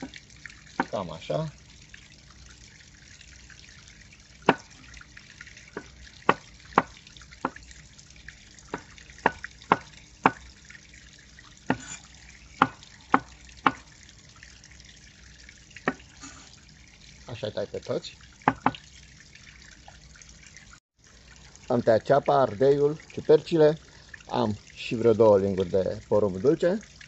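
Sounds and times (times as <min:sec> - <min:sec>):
knife chopping on wooden board: 0:11.7 - 0:12.0.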